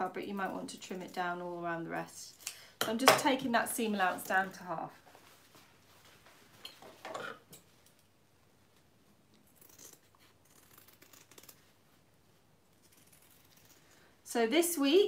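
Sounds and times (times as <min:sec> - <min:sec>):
fabric rustle: 0:04.0 - 0:07.0
scissors snipping fabric: 0:09.4 - 0:11.6, 0:12.7 - 0:14.0.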